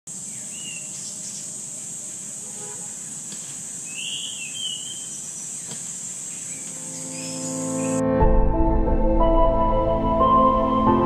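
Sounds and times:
thrush whistling song: 0:00.3 - 0:01.5, 0:03.8 - 0:08.2.

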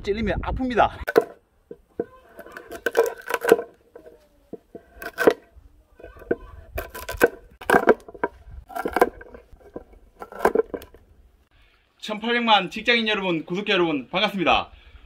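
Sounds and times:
woody branches cracking and snapping: 0:06.1 - 0:11.0.

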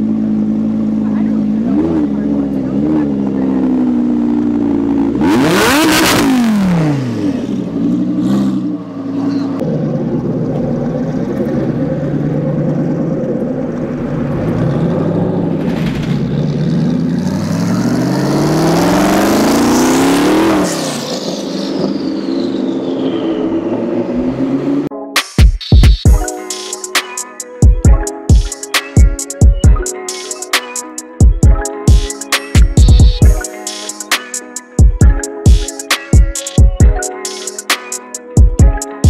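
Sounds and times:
sports car engine revving: 0:00.0 - 0:24.9.

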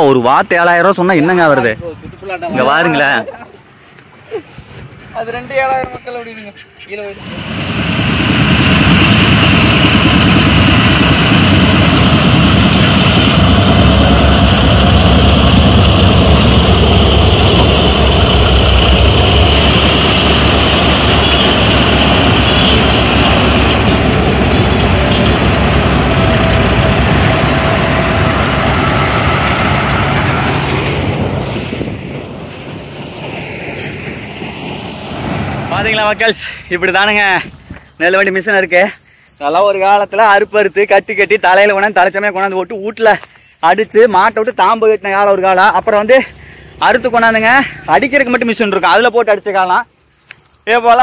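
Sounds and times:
combine harvester engine drone: 0:07.0 - 0:37.6.

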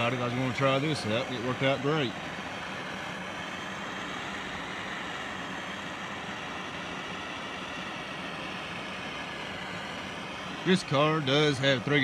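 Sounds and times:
blowtorch flame hissing: 0:00.0 - 0:12.0.

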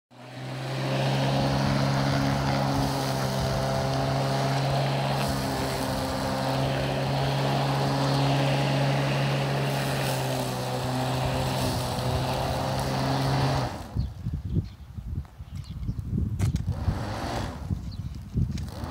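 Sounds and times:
electric lawn mower running: 0:00.1 - 0:14.1, 0:16.6 - 0:17.9, 0:18.5 - 0:18.9.

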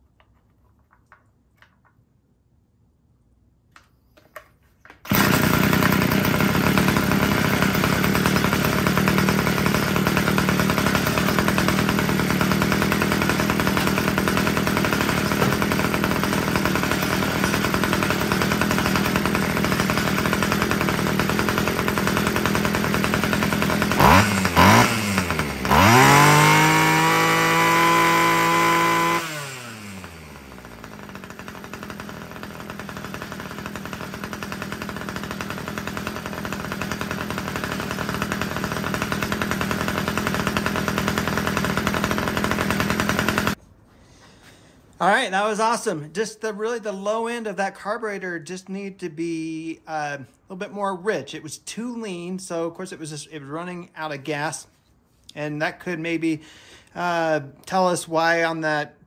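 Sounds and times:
string trimmer engine idling and revving: 0:04.8 - 0:43.6, 0:56.4 - 0:58.6.

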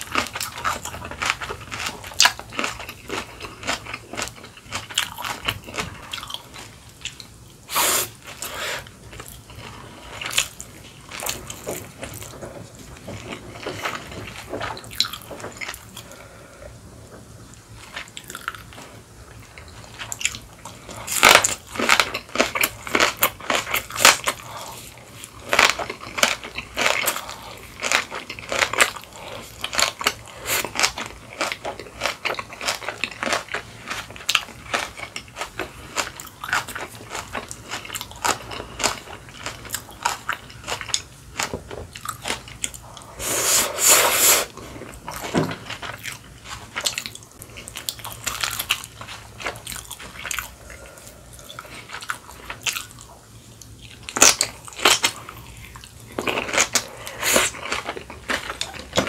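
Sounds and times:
chewing: 0:00.0 - 0:07.4, 0:08.2 - 0:16.3, 0:17.8 - 0:43.6, 0:44.3 - 0:59.0
loud crunching of food: 0:00.0 - 0:16.3, 0:17.7 - 0:59.0.

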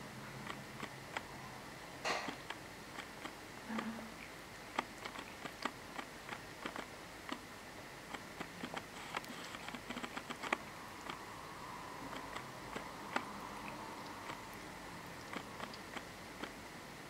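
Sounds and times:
cat licking its paw: 0:08.5 - 0:16.6.

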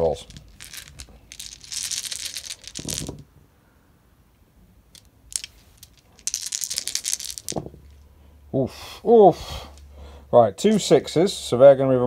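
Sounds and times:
dice clattering: 0:00.0 - 0:03.3, 0:04.9 - 0:08.0.

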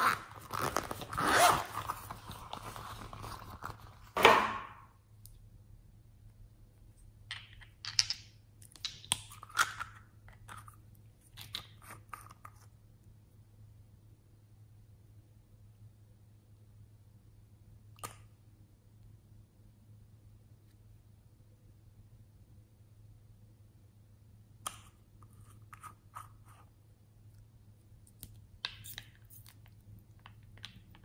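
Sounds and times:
zipper pulled open: 0:00.0 - 0:03.7.

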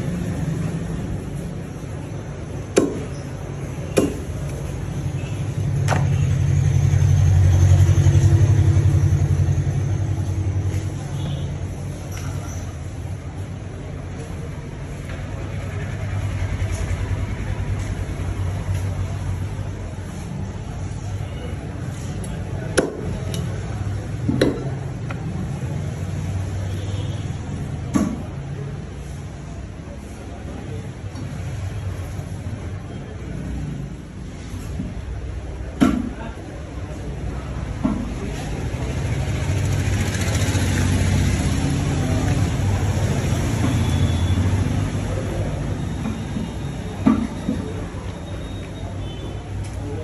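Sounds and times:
cleaver chopping on wooden block: 0:02.7 - 0:03.1, 0:03.9 - 0:04.4, 0:22.8 - 0:23.2
vehicle engine passing: 0:38.3 - 0:45.8.

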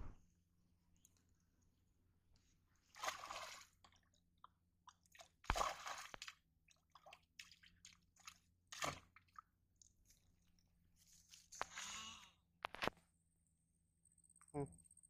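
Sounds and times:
fish splashing in water: 0:02.9 - 0:04.0, 0:04.9 - 0:09.4.

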